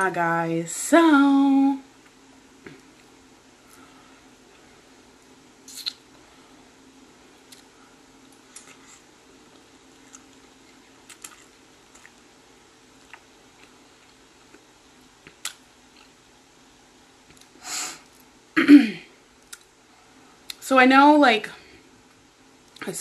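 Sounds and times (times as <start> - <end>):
person chewing: 7.4 - 12.3, 12.9 - 16.2, 19.4 - 19.7
short breathy hiss: 17.6 - 18.1.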